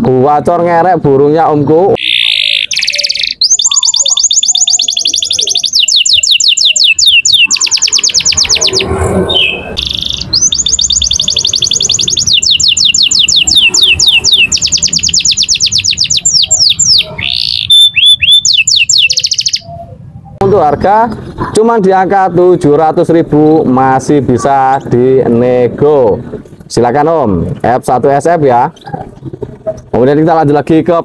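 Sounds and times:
canary singing trills: 0:01.9 - 0:20.4.

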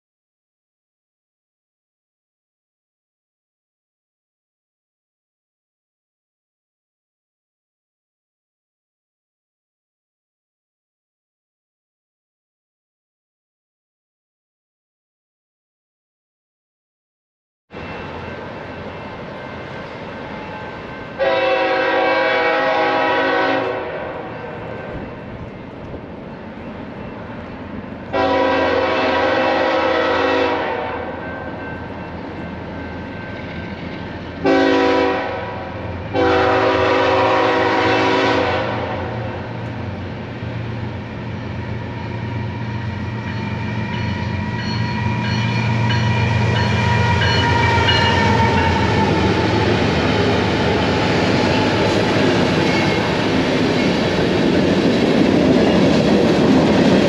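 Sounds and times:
diesel locomotive rumble: 0:17.8 - 0:57.0
locomotive air horn blasts: 0:21.2 - 0:24.3, 0:28.1 - 0:31.2, 0:34.4 - 0:39.4
train wheels clattering on rails: 0:41.7 - 0:57.0.

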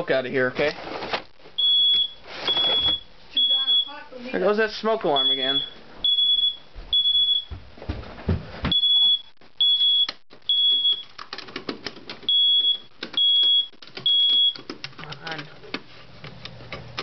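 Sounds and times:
smoke alarm beeping: 0:01.6 - 0:04.1, 0:05.0 - 0:07.6, 0:08.7 - 0:11.1, 0:12.3 - 0:14.6.

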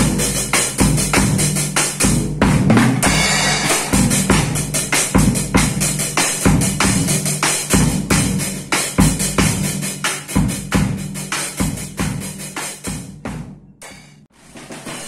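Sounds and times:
bass drum thumps: 0:00.8 - 0:09.8, 0:10.4 - 0:13.7
drum hits: 0:02.1 - 0:08.4
cymbal ringing: 0:03.0 - 0:04.8, 0:13.8 - 0:14.2.

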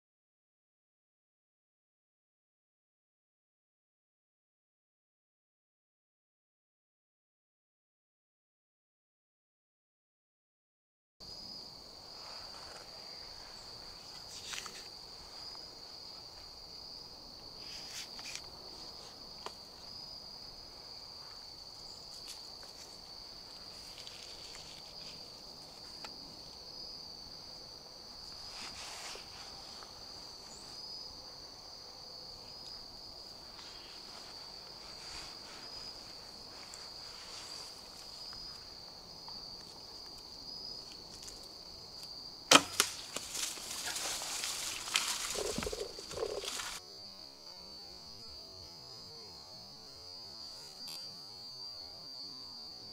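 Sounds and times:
insects trilling: 0:11.2 - 0:52.9.

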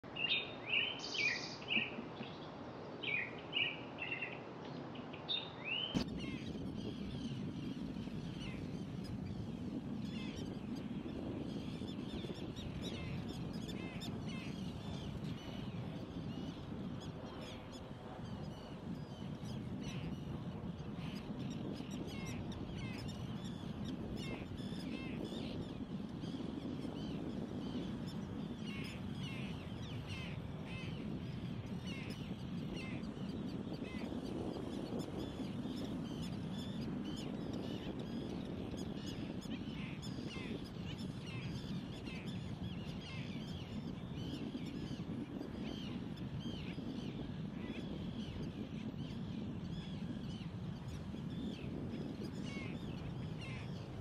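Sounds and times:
faint high bird chirps: 0:00.2 - 0:09.2.

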